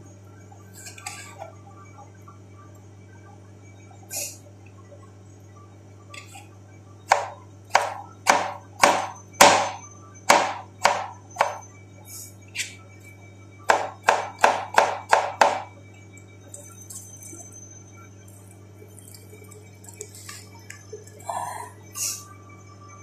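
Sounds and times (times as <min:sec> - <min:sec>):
knife chopping on cutting board: 0:07.1 - 0:11.6, 0:13.7 - 0:15.6.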